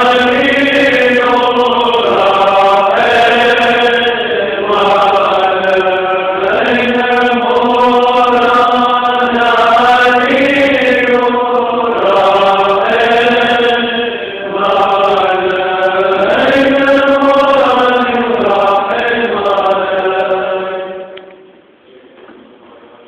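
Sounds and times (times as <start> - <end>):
men chanting together: 0.0 - 21.1.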